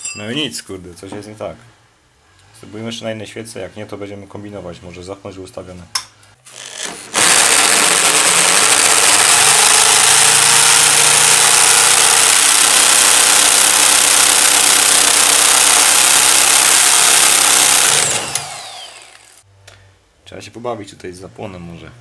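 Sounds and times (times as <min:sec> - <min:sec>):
power drill whine: 0:06.5 - 0:19.4.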